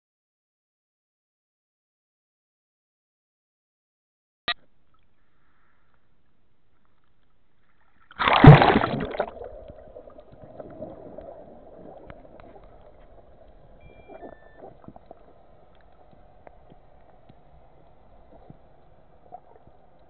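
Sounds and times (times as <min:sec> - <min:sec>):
splash into water: 0:08.1 - 0:12.0
muffled underwater gurgling: 0:08.2 - 0:20.0
faint clicks underwater: 0:09.0 - 0:20.0.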